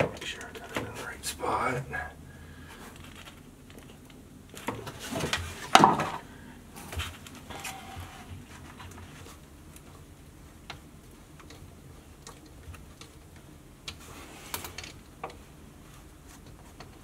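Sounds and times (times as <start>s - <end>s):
knocks and scrapes of pump parts: 4.6s - 9.4s.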